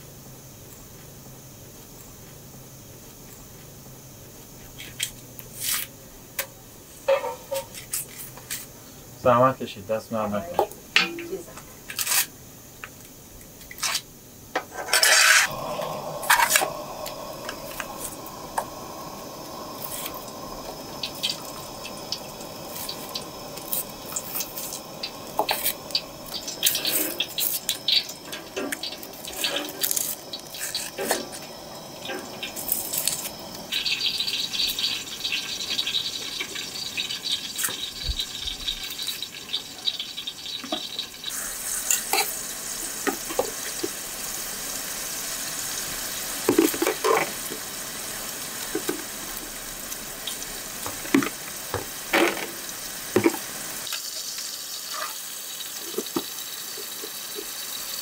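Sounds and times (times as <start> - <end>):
sizzling hiss: 0.0 - 58.0
metal tray clanking on burner: 7.1 - 8.0, 10.6 - 12.3, 14.6 - 15.5.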